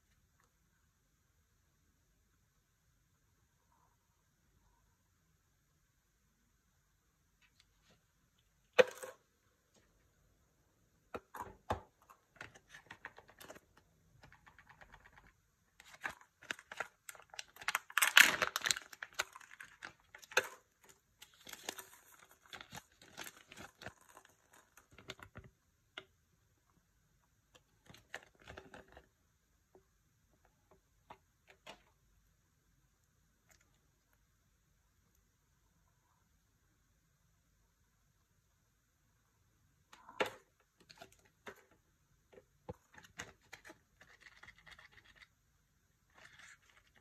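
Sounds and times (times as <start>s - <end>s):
plastic wrapper crinkling and tearing: 14.2s - 25.4s.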